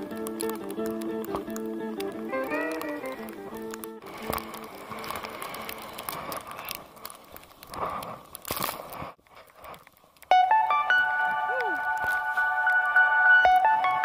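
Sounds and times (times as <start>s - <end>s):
guitar tune: 0.0s - 5.4s, 10.3s - 14.0s.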